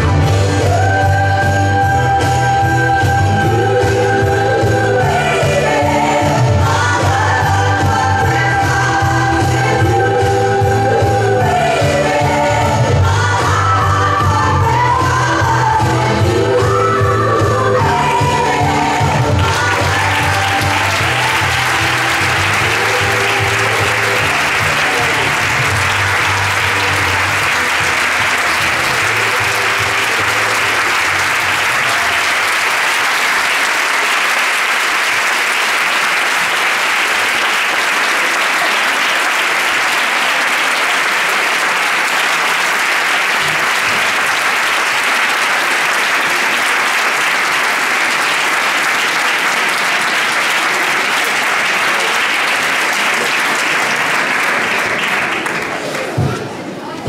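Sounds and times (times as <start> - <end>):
dance music: 0.0 - 32.7
audience applauding: 18.0 - 56.9.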